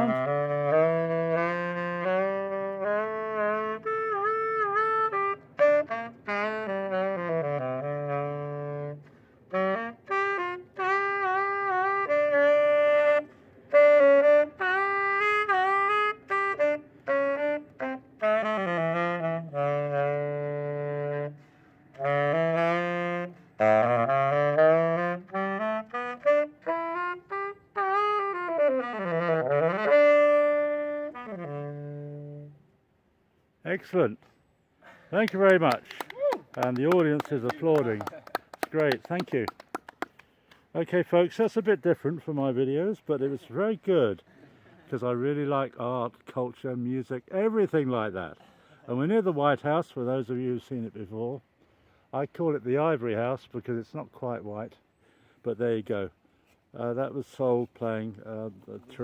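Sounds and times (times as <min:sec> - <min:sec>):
solo saxophone melody: 0:00.0 - 0:33.0.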